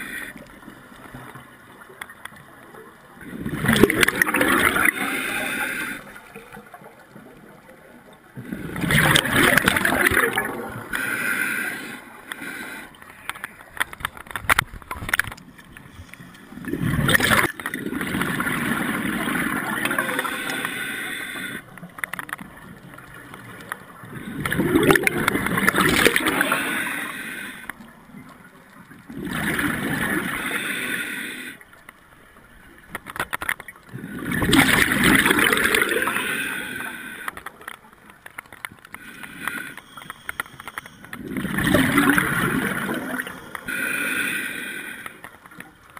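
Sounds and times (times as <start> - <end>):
exhaled bubbles rushing: 3.2 - 5.4, 8.4 - 10.9, 16.5 - 20.4, 24.0 - 26.6, 29.1 - 30.4, 33.9 - 36.2, 41.1 - 43.6
regulator inhaling: 4.9 - 6.2, 10.8 - 13.5, 26.4 - 27.8, 36.0 - 37.6, 38.9 - 41.2, 43.1 - 45.5.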